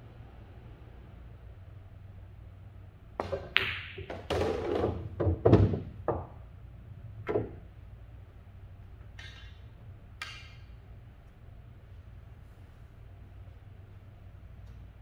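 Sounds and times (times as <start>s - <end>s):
ball rolling and knocking in pocket: 3.2s - 6.4s
cue striking ball: 3.2s - 6.4s
billiard balls clicking: 3.2s - 6.5s.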